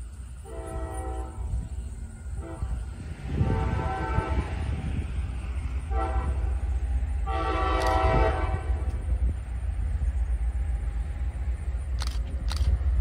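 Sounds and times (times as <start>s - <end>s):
locomotive air horn blasts: 0.4s - 1.7s, 2.3s - 4.8s, 5.8s - 6.6s, 7.2s - 9.0s
short clicks: 11.9s - 12.8s.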